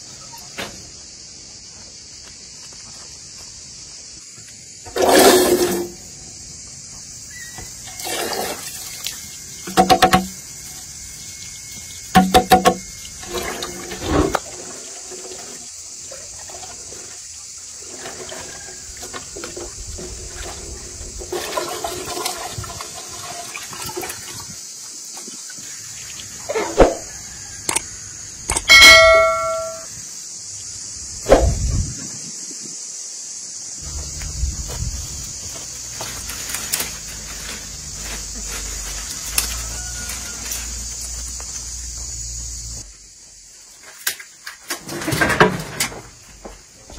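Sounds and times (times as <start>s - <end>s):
water running from a hose: 7.7s - 26.6s, 35.9s - 42.8s.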